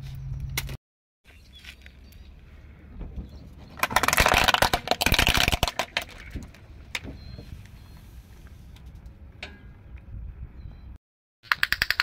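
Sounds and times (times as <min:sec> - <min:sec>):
plastic toys cracking under tyre: 0:03.7 - 0:06.6, 0:11.4 - 0:12.0.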